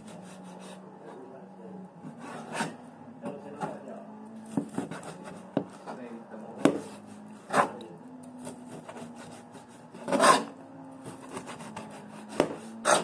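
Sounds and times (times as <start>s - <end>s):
scraping on wooden cutting board: 0.0s - 1.2s, 2.0s - 2.8s, 4.5s - 6.0s, 6.6s - 7.8s, 8.6s - 13.0s.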